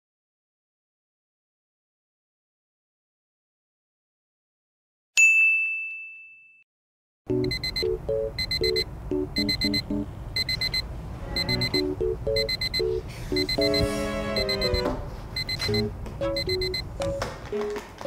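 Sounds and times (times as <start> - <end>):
alarm clock beeping: 7.3 - 10.8, 11.4 - 16.9
soft melody: 7.3 - 15.0, 15.6 - 18.0.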